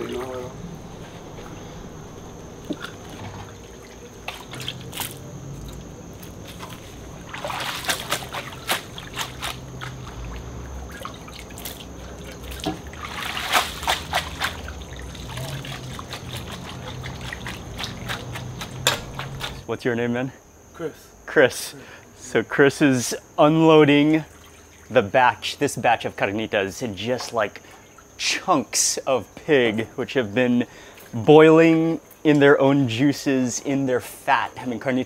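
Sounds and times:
steady low hum: 0.0 - 35.0
hot fat dripping and splashing: 2.4 - 19.6, 24.2 - 25.0.

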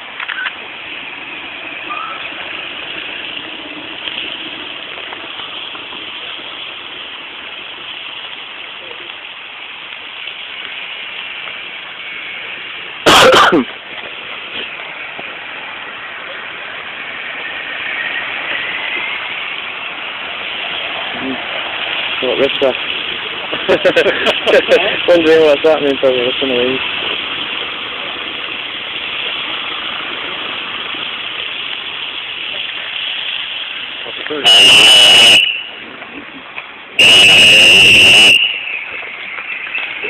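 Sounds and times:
outdoor background noise: 0.0 - 40.0
loud distorted burst: 11.0 - 14.8, 34.2 - 35.8, 37.0 - 40.0
faint voices: 15.9 - 18.5.

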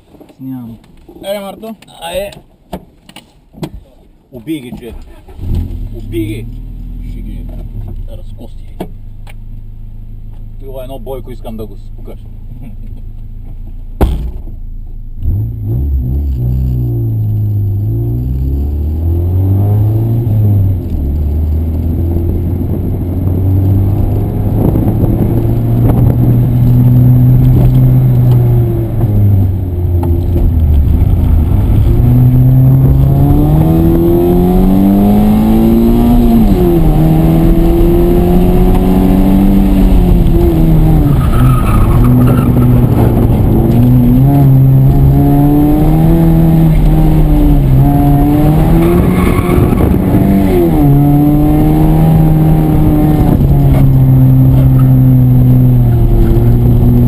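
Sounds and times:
sharp thump: 14.0 - 14.6
car engine accelerating: 15.1 - 57.0.

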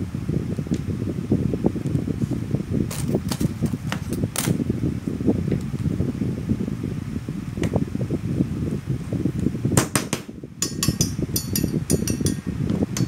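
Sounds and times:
steady low hum: 0.0 - 13.0
hammer tapping metal: 9.8 - 12.4.

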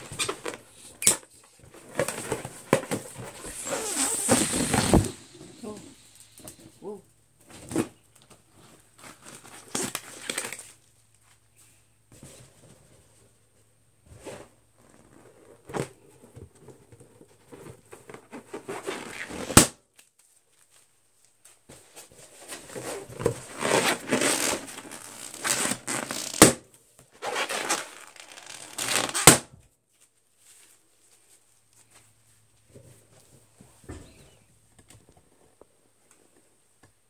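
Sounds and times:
balloons squeaking and rustling: 0.0 - 6.8, 22.8 - 29.4
balloon popping: 3.2 - 6.6, 24.2 - 26.6, 27.6 - 29.5.

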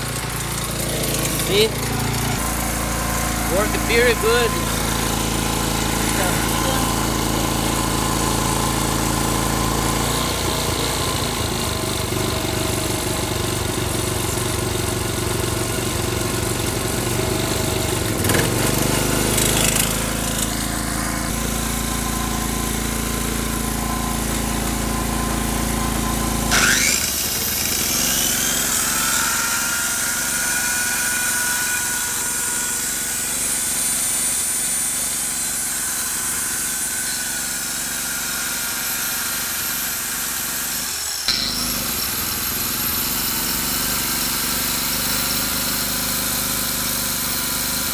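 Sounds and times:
generator running: 0.0 - 47.9.

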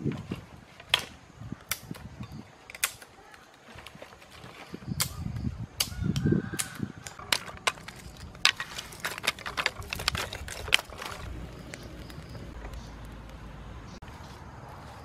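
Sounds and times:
sticks clattering on stones: 6.6 - 12.9.

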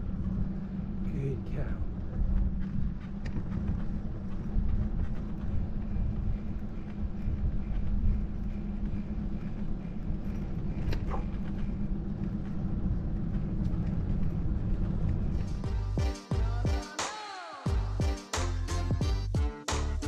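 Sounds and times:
wind buffeting microphone: 0.0 - 15.6
bicycle tyres on asphalt: 0.0 - 15.8.

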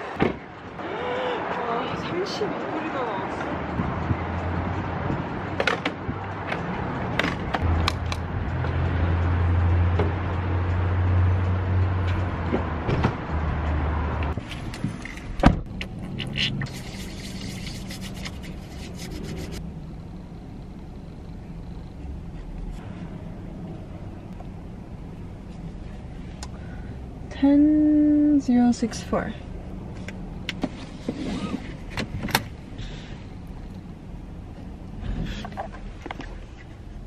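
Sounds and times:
gas pump nozzle clicks and scrapes: 14.4 - 19.6.

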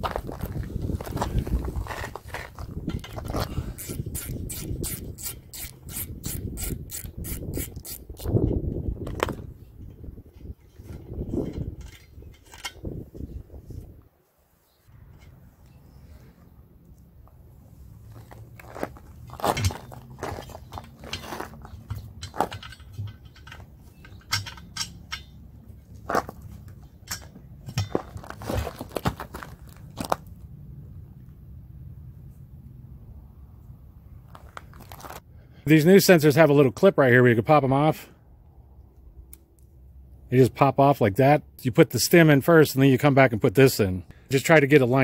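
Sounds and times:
clicks and knocks of rubber and metal: 0.0 - 13.4, 16.9 - 30.5, 34.2 - 35.3
ratchet wrench clicking: 3.8 - 8.4
metal scrape: 18.0 - 28.8.

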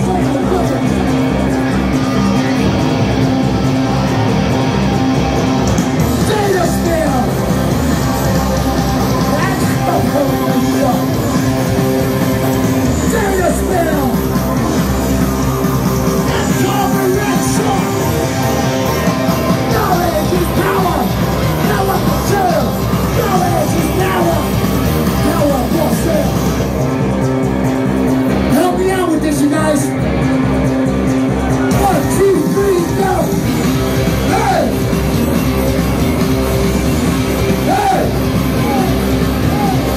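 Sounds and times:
drum kit: 0.0 - 39.9
electric guitars: 0.0 - 39.9
person singing yelled vocals: 34.2 - 34.8, 37.6 - 39.9.

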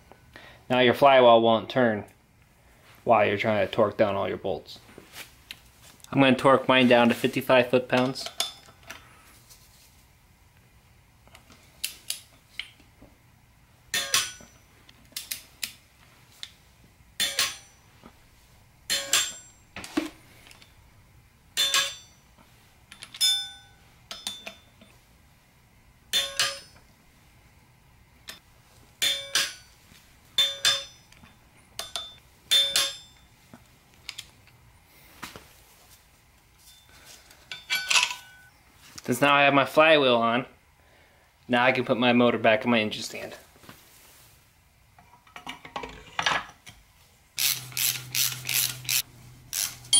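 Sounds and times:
torque wrench clicking: 47.4 - 49.8.

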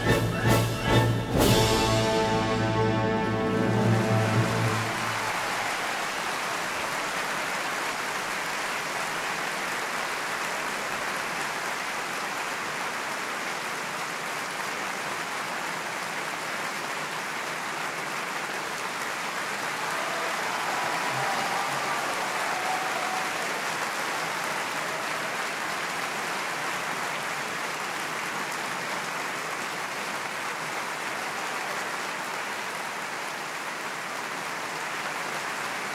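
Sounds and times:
orchestra final chord: 0.0 - 5.6
audience applauding: 0.0 - 35.9.

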